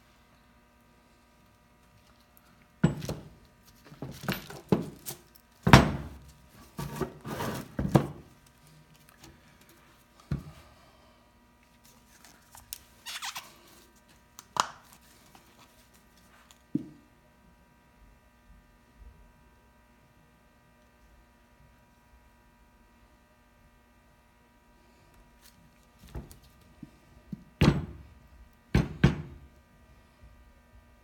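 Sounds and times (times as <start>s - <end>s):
wooden boards knocking: 28.8s - 29.4s.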